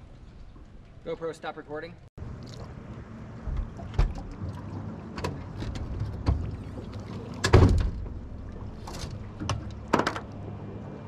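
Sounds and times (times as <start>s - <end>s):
low steady hum: 2.0s - 11.0s.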